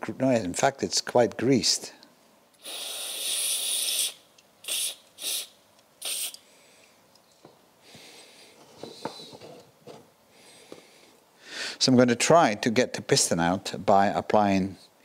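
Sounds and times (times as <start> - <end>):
aerosol spray hissing: 2.6 - 6.4.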